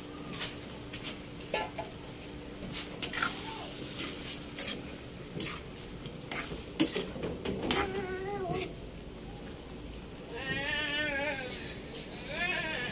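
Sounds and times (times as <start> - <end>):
metal spatula scraping a wok: 3.0 - 5.7, 6.3 - 7.1.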